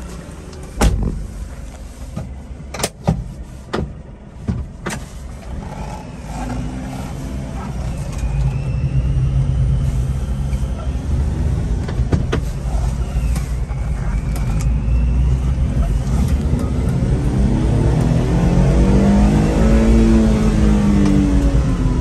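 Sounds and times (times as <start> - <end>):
truck engine driving: 0.0 - 22.0.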